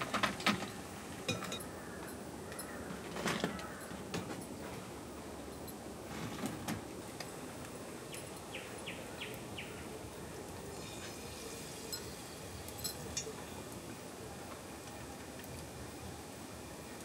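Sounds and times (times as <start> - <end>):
steady background hiss: 0.0 - 17.0
bird chirping: 8.1 - 9.9
oil sizzling and crackling: 10.5 - 17.0.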